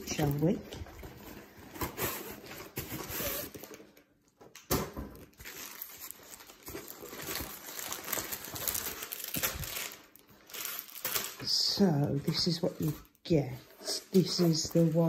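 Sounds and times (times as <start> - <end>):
paper rustling and crinkling: 0.0 - 4.1, 5.0 - 15.0.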